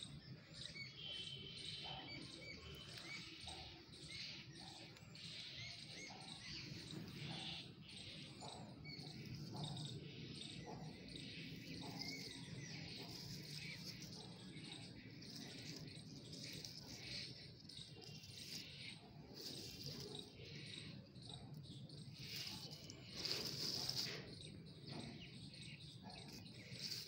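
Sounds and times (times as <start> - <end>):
bird calls: 0.0 - 27.0
insects chirping: 8.4 - 25.2.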